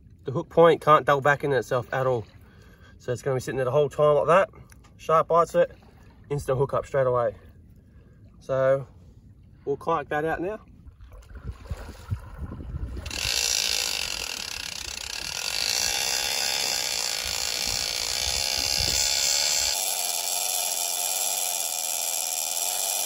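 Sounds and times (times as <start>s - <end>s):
fishing reel ratchet buzzing: 13.0s - 23.0s.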